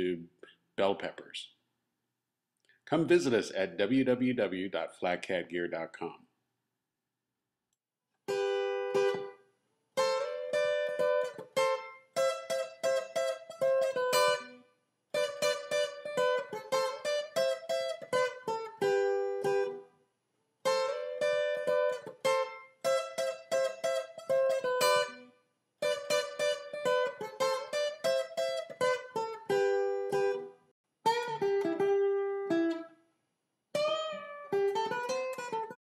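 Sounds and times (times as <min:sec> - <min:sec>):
plucked string instrument melody: 0:08.3 - 0:09.4, 0:10.0 - 0:19.9, 0:20.7 - 0:33.0, 0:33.8 - 0:35.8.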